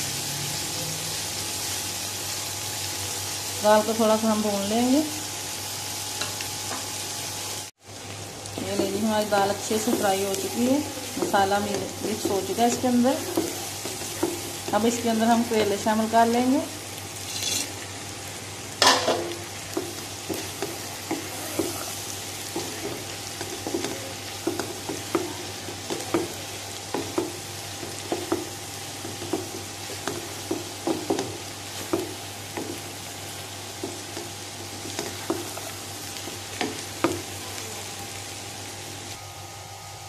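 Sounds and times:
food sizzling: 0.0s - 40.0s
spoon scraping pan: 9.7s - 16.0s, 17.2s - 17.9s.

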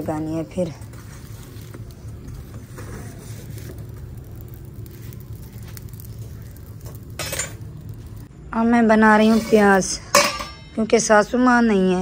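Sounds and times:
wood fire crackling: 0.0s - 10.7s.

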